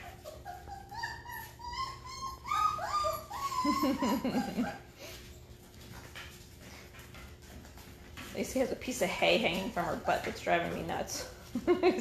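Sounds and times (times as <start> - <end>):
low wavering puppy cry: 0.0 - 4.9
puppies whining and squeaking: 0.0 - 7.5, 9.2 - 12.0.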